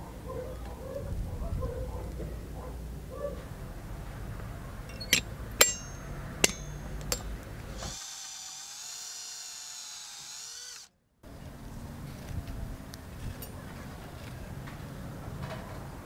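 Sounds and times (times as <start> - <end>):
power drill whining into metal: 7.7 - 10.9.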